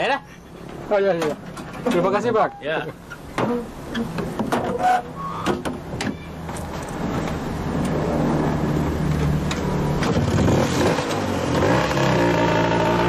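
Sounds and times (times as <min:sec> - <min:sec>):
auto rickshaw engine revving: 0:06.7 - 0:13.0.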